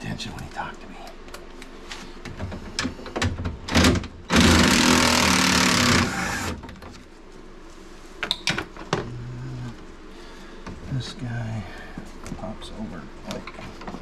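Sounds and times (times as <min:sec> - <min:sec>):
cordless ratchet motor whir: 0:04.3 - 0:06.6.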